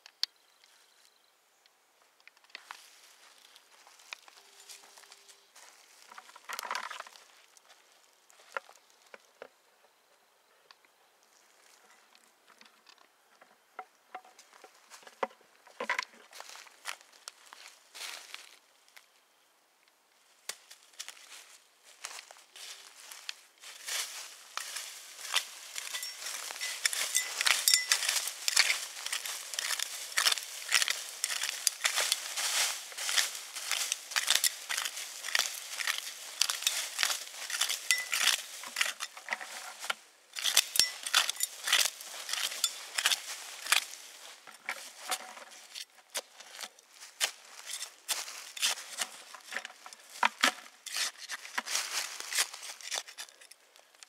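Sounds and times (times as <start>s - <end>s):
dry leaves crunching: 2.6s - 9.0s, 16.0s - 18.6s, 20.5s - 54.0s
metal scoop scraping soil: 23.7s - 46.7s, 47.5s - 50.2s, 50.8s - 53.5s.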